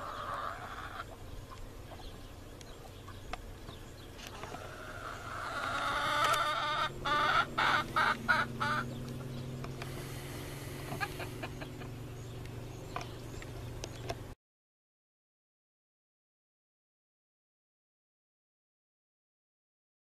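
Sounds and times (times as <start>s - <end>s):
chickens squawking: 0.0s - 12.4s
low steady hum: 0.0s - 14.4s.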